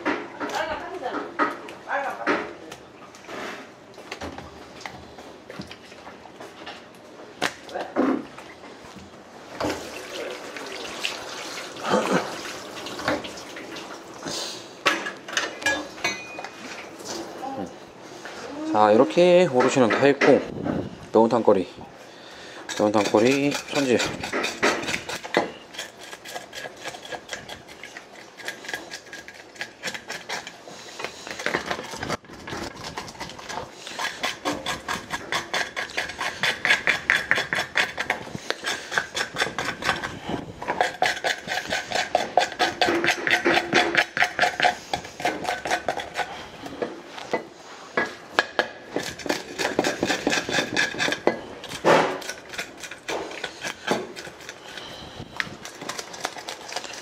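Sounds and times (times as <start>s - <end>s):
blade scraping fish scales: 22.6s - 46.7s, 49.0s - 57.0s.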